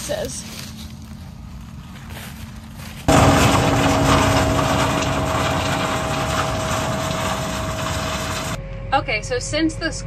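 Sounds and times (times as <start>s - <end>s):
combine harvester running: 1.0s - 8.6s
low rumble: 3.1s - 10.0s.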